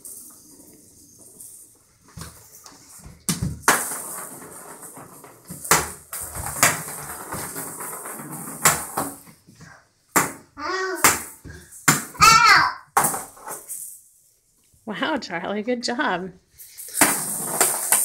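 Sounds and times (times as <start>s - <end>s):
toy balls clacking on wooden floor: 3.3s - 9.3s, 10.1s - 14.0s, 16.6s - 18.0s.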